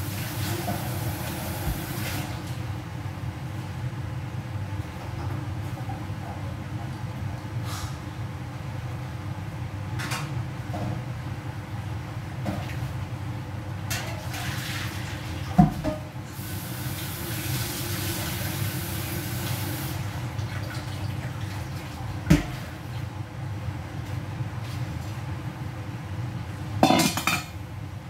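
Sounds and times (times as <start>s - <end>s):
kitchenware clattering: 26.8s - 27.6s.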